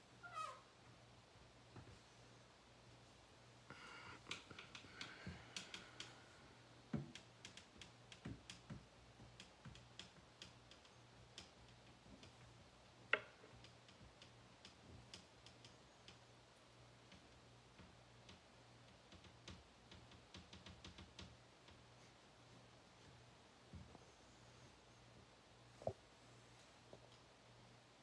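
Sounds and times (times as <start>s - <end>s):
small clicks and taps: 3.7s - 22.0s.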